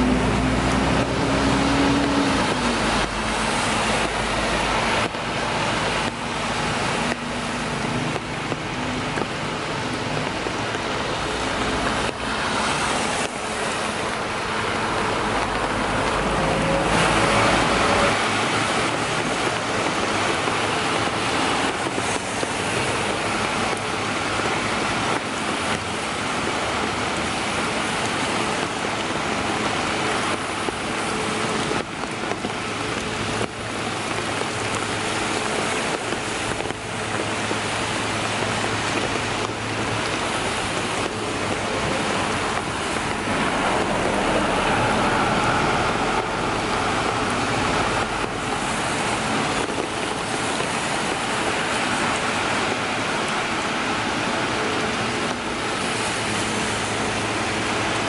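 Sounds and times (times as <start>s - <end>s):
steady rainfall: 0.0s - 58.0s
tyres hissing on wet road: 0.0s - 58.0s.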